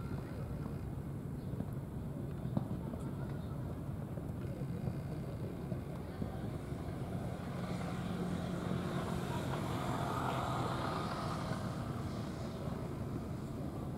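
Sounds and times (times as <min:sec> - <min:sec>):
engine droning: 0:06.4 - 0:13.9.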